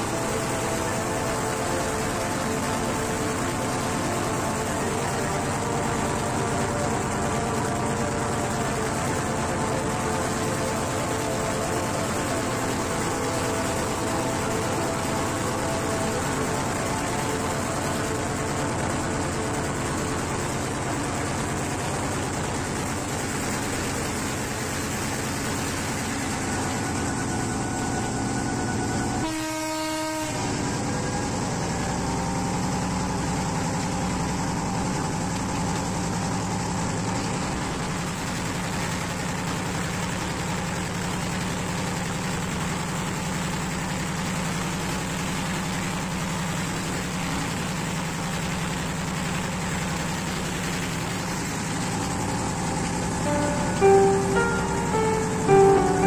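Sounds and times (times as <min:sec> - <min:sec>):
train horn: 0:00.0 - 0:21.8, 0:26.2 - 0:31.4, 0:53.2 - 0:56.0
train rail running noise: 0:00.0 - 0:56.0
low engine hum: 0:30.3 - 0:56.0.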